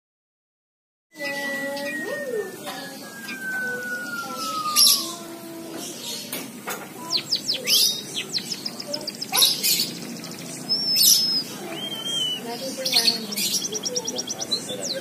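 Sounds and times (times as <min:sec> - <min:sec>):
high bird whistle: 0:01.1 - 0:05.3, 0:10.7 - 0:12.5
bird singing chirps and trills: 0:01.1 - 0:15.0.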